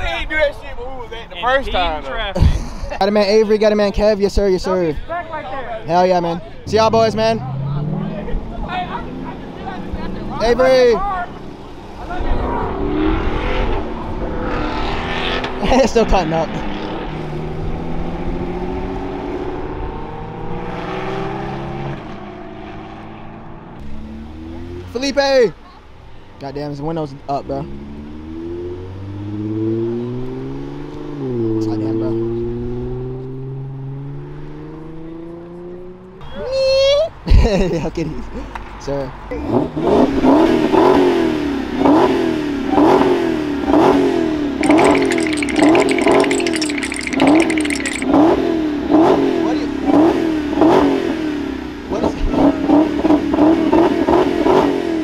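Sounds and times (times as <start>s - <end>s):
car engine accelerating: 6.6s - 25.3s, 27.5s - 36.2s, 39.4s - 55.0s.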